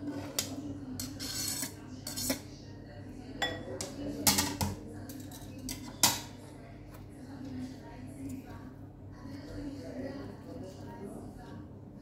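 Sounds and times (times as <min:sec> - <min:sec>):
knife scraping cutting board: 0:00.0 - 0:02.4.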